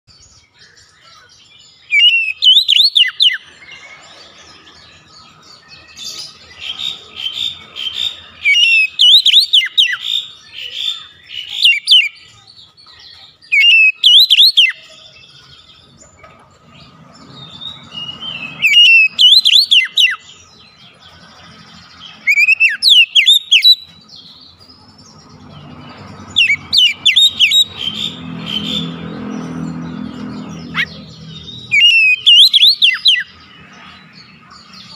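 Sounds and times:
bird singing whistled phrases: 1.9 - 3.5, 7.2 - 12.3, 13.4 - 15.2, 17.4 - 20.4, 22.2 - 23.9, 26.4 - 28.0, 31.6 - 33.4.

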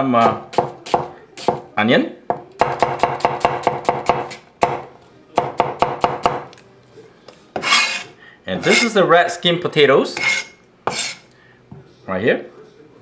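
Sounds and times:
knife chopping on wooden board: 0.2 - 1.7, 2.3 - 6.5, 10.2 - 11.2.

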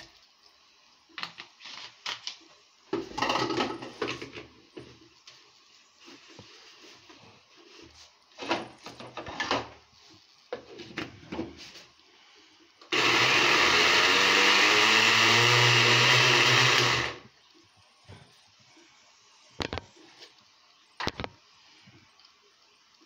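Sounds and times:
blender motor whirring: 12.9 - 17.2.

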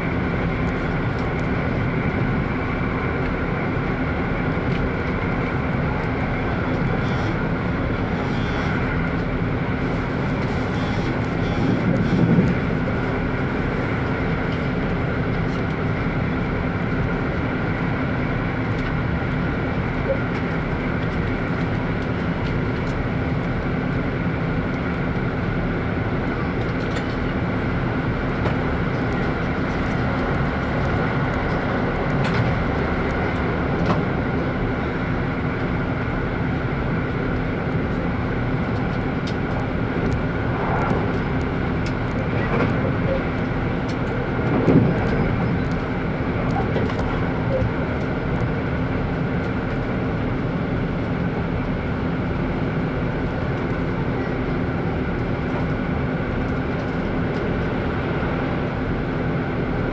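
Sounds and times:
diesel engine drone: 0.0 - 59.9
train wheels rumbling on rails: 0.0 - 59.9
brief rush: 40.0 - 42.4.

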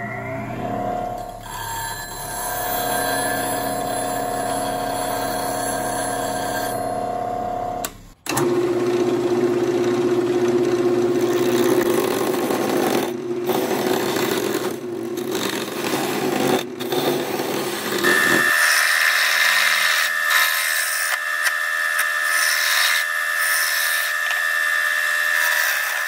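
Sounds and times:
wood lathe motor hum: 0.5 - 26.0
bench grinder ringing: 0.6 - 7.8, 11.1 - 26.0
gouge scraping wood: 11.3 - 21.2.

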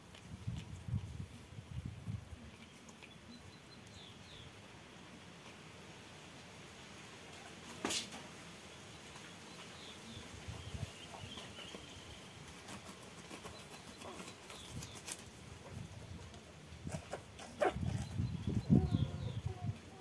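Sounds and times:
chicken flapping against dirt: 7.3 - 9.8, 10.4 - 18.8.

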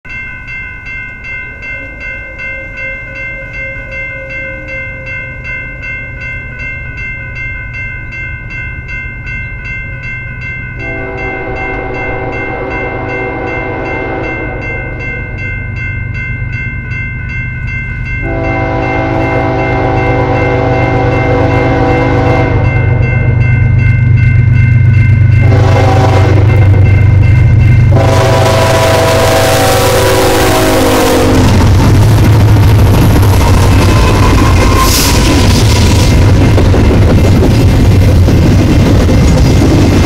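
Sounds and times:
railroad crossing bell ringing: 0.0 - 39.3
train rumble: 0.1 - 40.0
locomotive horn blast: 10.8 - 15.1, 18.2 - 23.1, 25.4 - 26.9, 27.9 - 32.8.

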